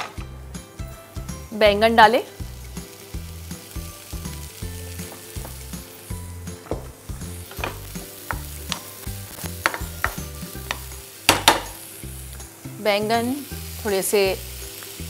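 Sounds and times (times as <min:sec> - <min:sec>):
eggplant sizzling in oil: 0:00.4 - 0:15.0
spatula scraping and tapping pan: 0:07.5 - 0:11.7.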